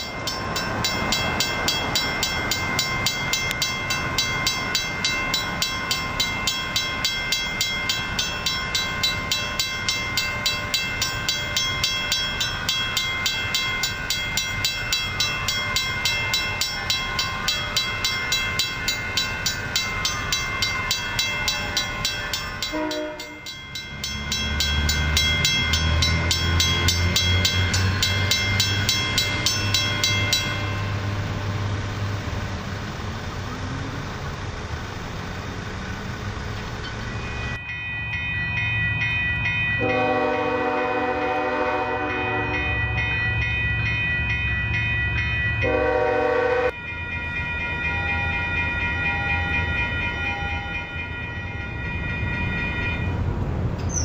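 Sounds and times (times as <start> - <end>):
railroad crossing bells ringing: 0.0 - 54.0
train rumble: 0.0 - 54.0.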